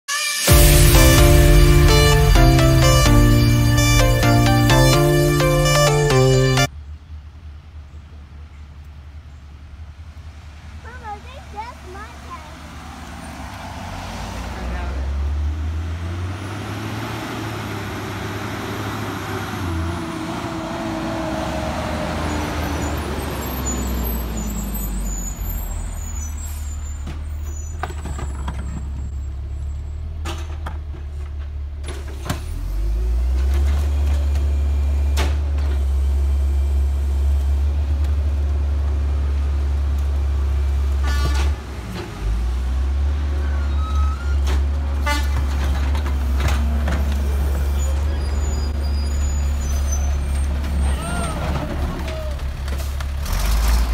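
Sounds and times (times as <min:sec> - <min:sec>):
garbage truck diesel engine: 0:00.1 - 0:53.9
hydraulic tipper and packer: 0:31.8 - 0:38.1, 0:43.6 - 0:53.9.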